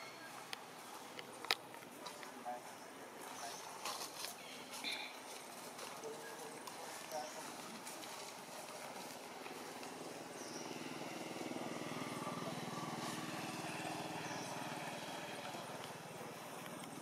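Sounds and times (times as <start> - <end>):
passing vehicle engine: 8.4 - 17.0.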